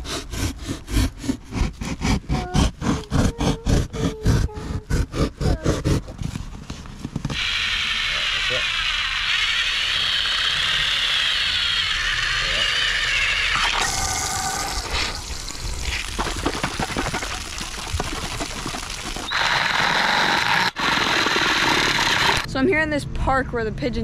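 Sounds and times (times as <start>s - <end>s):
drill grinding through metal can: 7.3s - 22.5s
water splashing and dripping: 14.6s - 19.8s.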